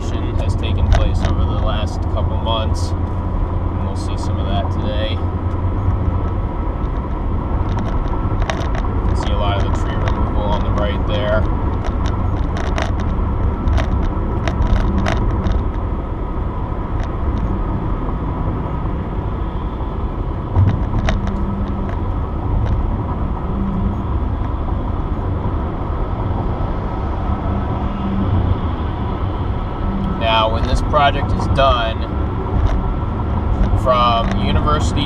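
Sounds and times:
car road noise at highway speed: 0.0s - 35.0s.

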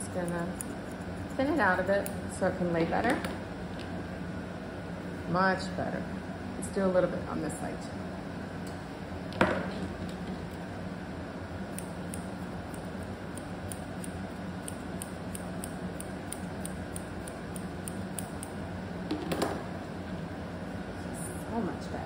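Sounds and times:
shears snipping fur: 0.0s - 3.3s, 11.7s - 18.6s.

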